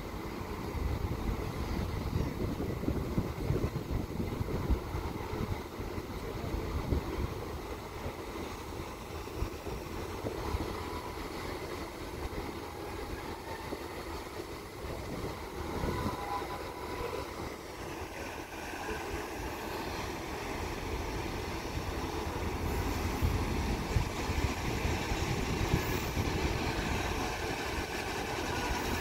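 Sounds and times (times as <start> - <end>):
churning propeller wash: 0.0 - 29.0
ship engine rumble: 0.0 - 29.0
wind on microphone: 0.8 - 7.4, 21.8 - 29.0.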